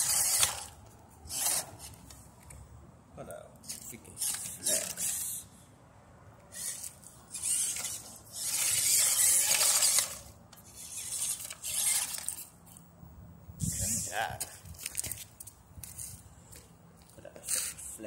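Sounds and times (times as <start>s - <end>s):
toy car electric motor whirring: 0.0s - 2.2s, 3.7s - 5.6s, 6.5s - 12.6s, 13.6s - 14.1s.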